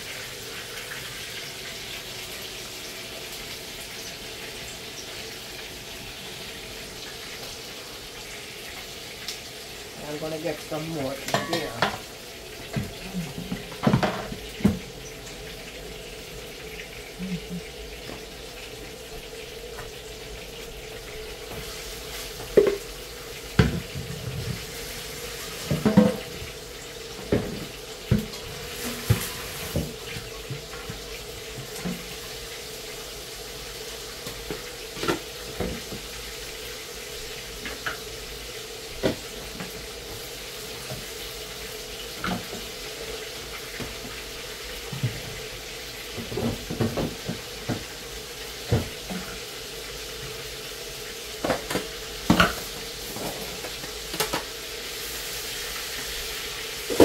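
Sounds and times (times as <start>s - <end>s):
water running: 0.0s - 57.0s
pots and utensils knocking: 11.2s - 12.0s, 12.7s - 14.9s, 22.4s - 22.9s, 25.6s - 26.4s, 51.4s - 53.5s.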